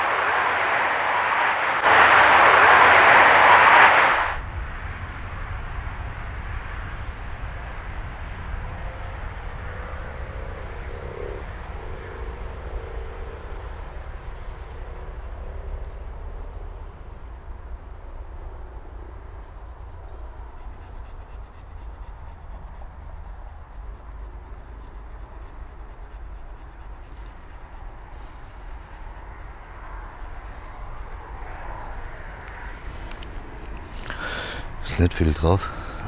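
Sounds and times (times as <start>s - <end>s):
outdoor hiss: 0.0s - 5.2s, 32.7s - 36.0s
faint hum: 0.0s - 36.0s
wind rumbling on microphone: 0.0s - 36.0s.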